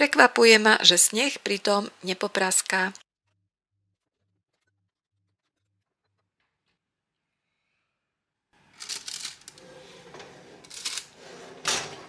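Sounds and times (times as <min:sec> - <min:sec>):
oven hum: 0:08.6 - 0:12.0
metal baking tray clattering: 0:08.8 - 0:12.0.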